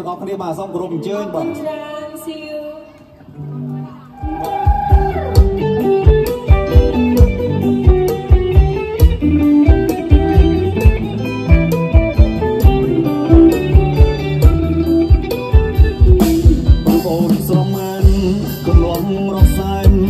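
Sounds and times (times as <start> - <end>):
electric guitar melody: 0.2 - 20.0
steady drum beat: 4.2 - 20.0.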